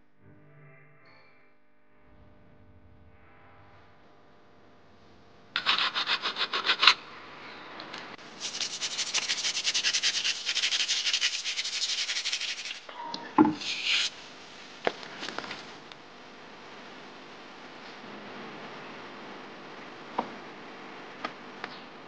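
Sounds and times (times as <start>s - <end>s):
scraping on wet millstone: 5.6s - 7.0s, 8.4s - 14.2s
knock: 13.4s - 13.6s.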